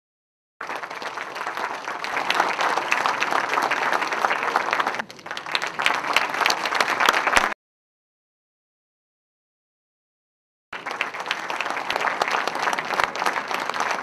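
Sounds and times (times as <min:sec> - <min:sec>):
audience applauding: 0:00.6 - 0:07.6, 0:10.8 - 0:14.0.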